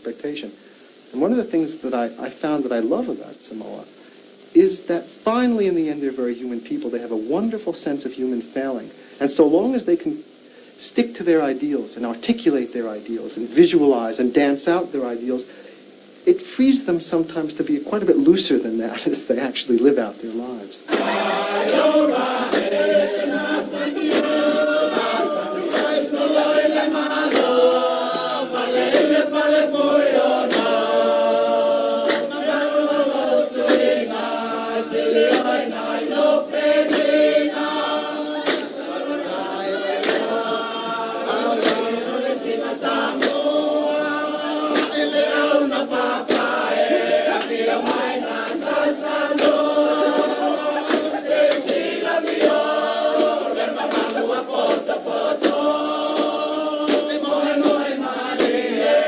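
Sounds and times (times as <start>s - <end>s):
group singing in harmony: 20.9s - 59.0s.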